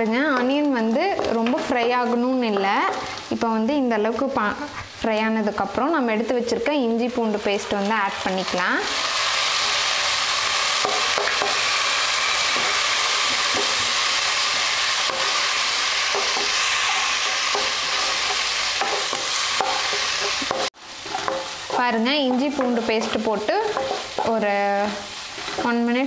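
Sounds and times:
food sizzling in hot oil: 0.0s - 26.0s
wooden spatula scraping a pan: 12.4s - 26.0s.

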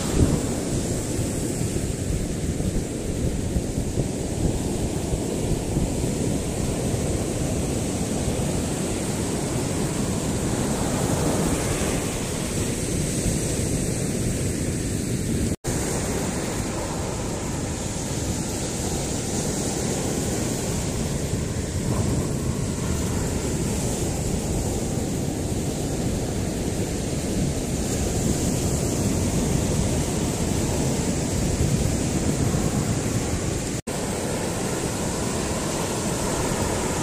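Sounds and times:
sea surf: 0.0s - 37.0s
wind rumbling on microphone: 0.0s - 37.0s.

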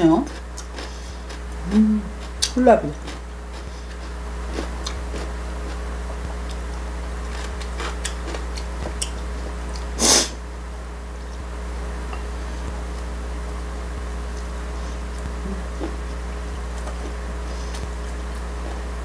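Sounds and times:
low electrical hum: 0.0s - 19.0s
person chewing crunchy food: 0.2s - 10.4s, 11.1s - 19.0s
breathy sniff: 10.0s - 10.4s, 17.4s - 17.9s.

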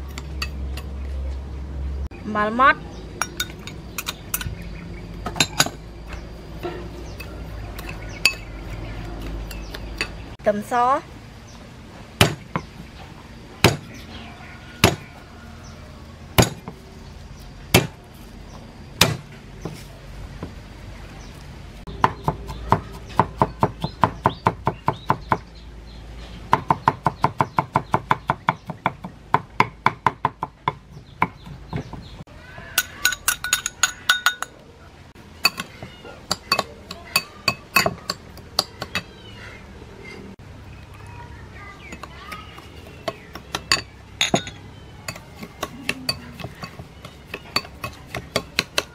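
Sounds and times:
ringing metallic clinks: 3.2s - 4.6s, 32.8s - 34.5s, 43.5s - 46.8s
cleaver chopping on wooden board: 12.2s - 12.7s, 13.6s - 13.9s, 14.8s - 15.1s, 16.4s - 16.8s, 17.7s - 18.0s, 19.0s - 19.8s, 45.1s - 48.9s.

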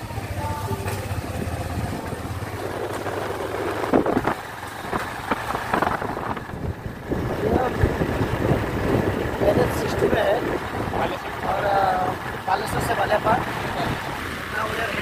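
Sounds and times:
motorcycle engine humming: 0.0s - 15.0s
road and wind rush: 0.0s - 15.0s.

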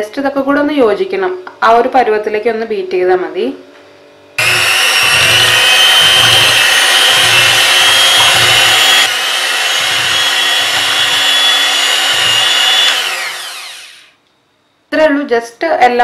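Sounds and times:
electric hand mixer whining: 4.4s - 14.2s.

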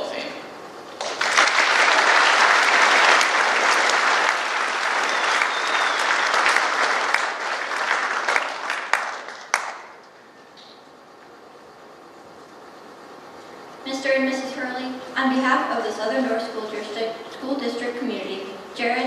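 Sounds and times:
audience applauding: 0.9s - 10.2s.

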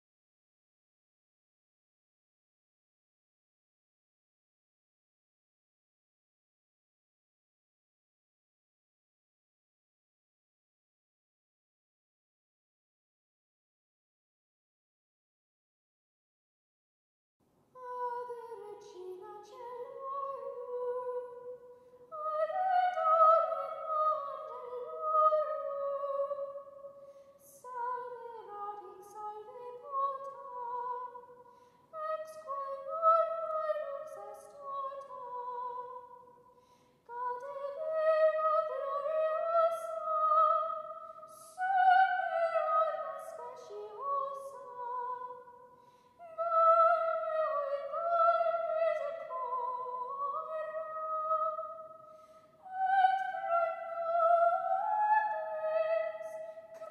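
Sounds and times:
soprano singing chant: 17.8s - 31.4s, 32.0s - 36.3s, 37.1s - 45.6s, 46.2s - 52.0s, 52.6s - 56.9s.

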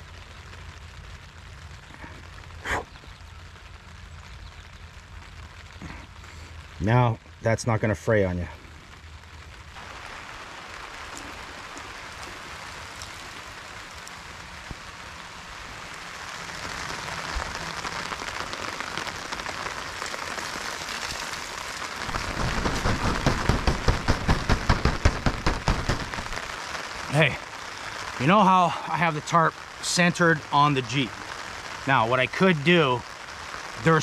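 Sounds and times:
rain on a plastic tarp: 0.0s - 34.0s
heavy drops hitting tarp: 21.1s - 26.6s.

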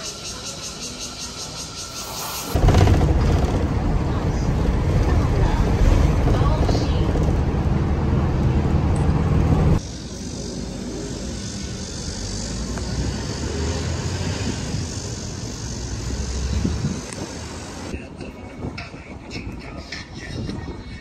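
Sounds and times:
bus engine rumbling: 0.0s - 20.7s
wind rumbling on microphone: 2.5s - 9.8s, 14.0s - 21.0s.

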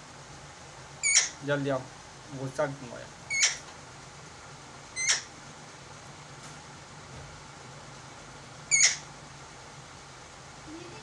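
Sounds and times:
parakeet shrill screeches: 1.0s - 1.4s, 3.3s - 3.6s, 5.0s - 5.3s, 8.7s - 9.0s.

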